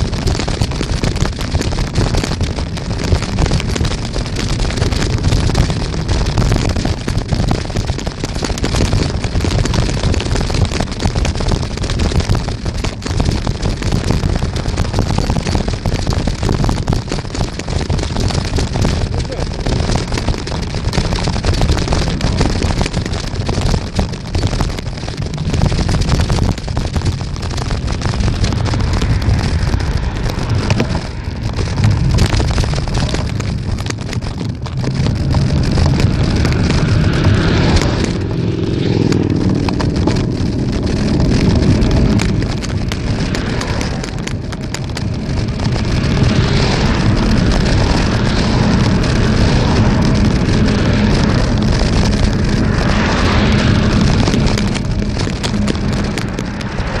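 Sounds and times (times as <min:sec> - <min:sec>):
wind buffeting microphone: 0:00.0 - 0:57.0
road traffic passing: 0:34.6 - 0:57.0.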